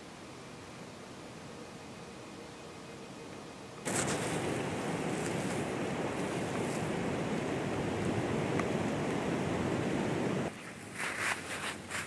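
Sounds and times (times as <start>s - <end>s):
wind blowing: 3.8s - 11.0s.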